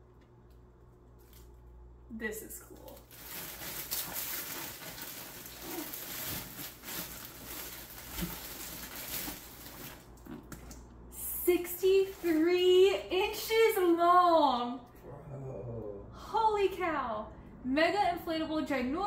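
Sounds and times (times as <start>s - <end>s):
packaging rustling and crinkling: 2.8s - 10.3s, 11.8s - 12.8s.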